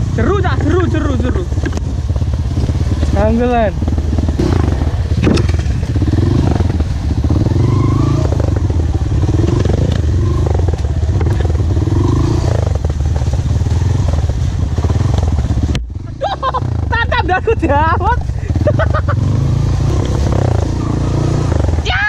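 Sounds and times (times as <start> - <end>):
motorcycle knocking and clattering: 0.0 - 7.0, 8.3 - 16.9
motorcycle engine revving: 0.0 - 22.0.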